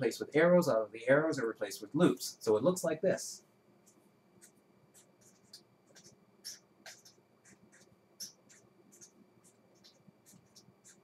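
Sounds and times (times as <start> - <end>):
pen scratching on paper: 4.4 - 11.0.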